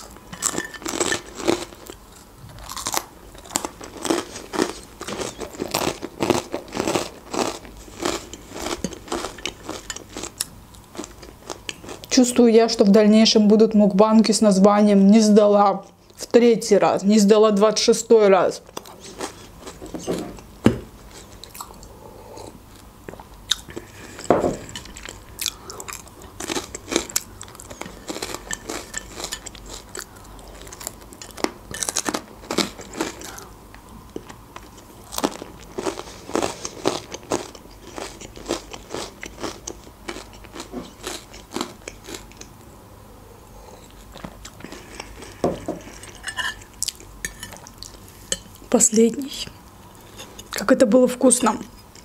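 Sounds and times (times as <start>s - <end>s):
chewing sausage: 0.0s - 12.2s, 21.1s - 33.5s, 34.1s - 42.6s.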